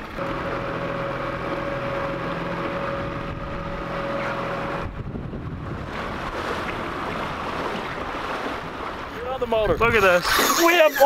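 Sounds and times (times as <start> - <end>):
outboard motor running: 0.0 - 11.0
water rushing past hull: 0.0 - 11.0
wind on the microphone: 4.8 - 6.9, 9.6 - 10.4.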